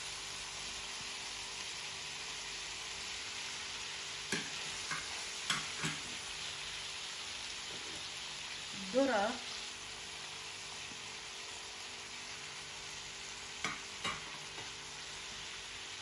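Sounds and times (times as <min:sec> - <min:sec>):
meat and vegetables sizzling in pan: 0:00.0 - 0:16.0
spatula knocking and scraping pan: 0:04.3 - 0:06.2, 0:13.6 - 0:14.7.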